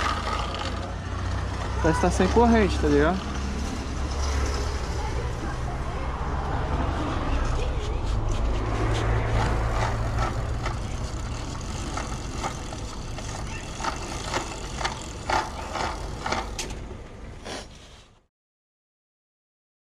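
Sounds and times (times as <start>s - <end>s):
bicycle crank clicks and knocks: 9.4s - 16.8s.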